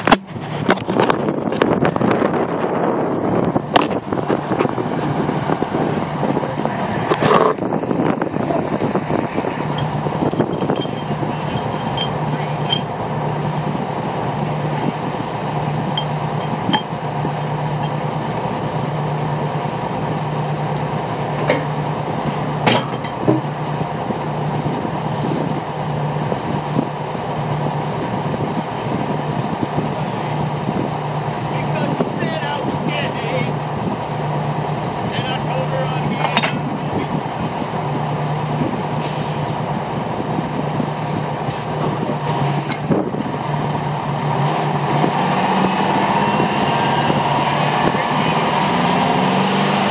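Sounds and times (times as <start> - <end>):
engine running with low hum: 0.0 - 49.9
sharp metal clanks of tubing: 16.0 - 17.0.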